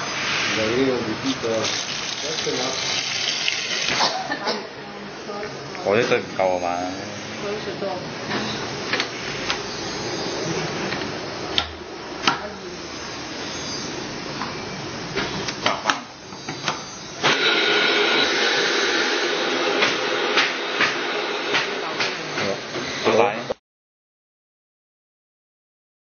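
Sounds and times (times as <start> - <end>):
blender motor running: 0.0 - 4.1, 16.9 - 23.5
knocks and clatter of blender: 19.8 - 22.6.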